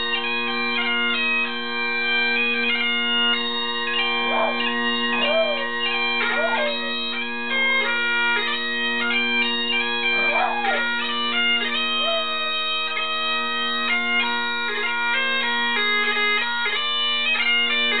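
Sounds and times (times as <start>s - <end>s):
bagpipes playing over drone: 0.0s - 18.0s
dog howling: 4.2s - 8.1s, 10.1s - 11.0s, 11.9s - 12.7s.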